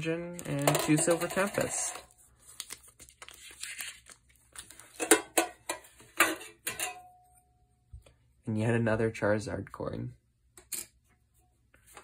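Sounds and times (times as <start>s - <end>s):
foil wrappers crinkling: 0.4s - 5.0s.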